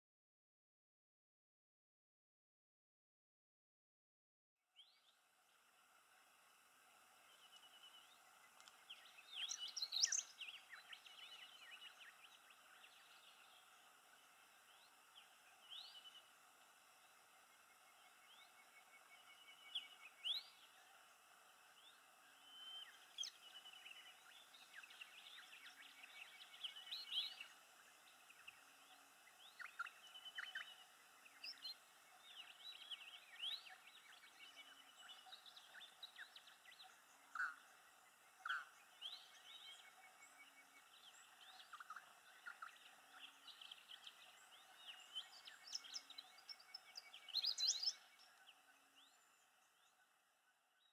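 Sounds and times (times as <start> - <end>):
birds chirping and whistling: 8.9 - 13.6, 28.3 - 37.6, 38.4 - 48.3.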